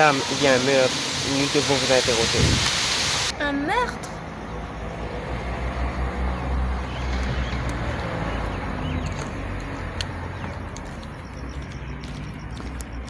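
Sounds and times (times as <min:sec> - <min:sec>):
noisy hiss: 0:00.0 - 0:03.3
traffic rumble: 0:00.0 - 0:13.0.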